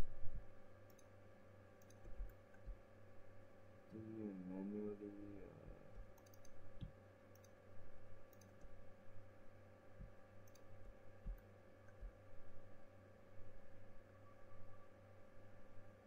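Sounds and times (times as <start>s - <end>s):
faint hum: 0.0s - 16.0s
computer mouse clicks: 0.8s - 1.2s, 1.8s - 2.8s, 5.9s - 7.6s, 8.3s - 8.7s, 10.4s - 10.7s
soft low thumps: 11.2s - 11.4s.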